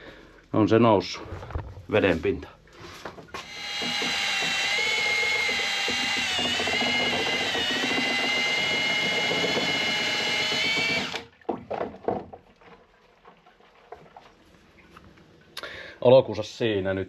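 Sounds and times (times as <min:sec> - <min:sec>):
cordless drill motor whine: 0:03.4 - 0:11.3
knocks: 0:03.4 - 0:12.4.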